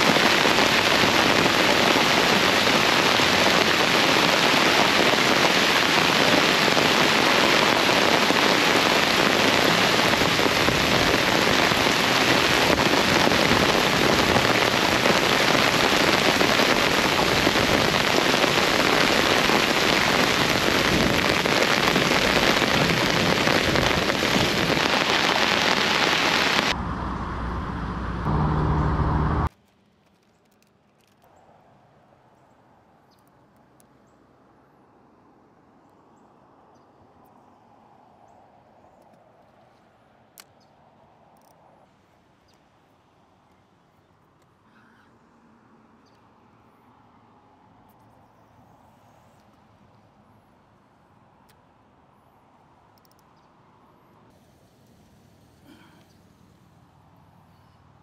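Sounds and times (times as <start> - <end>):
heavy rain on a boat: 0.0 - 26.8.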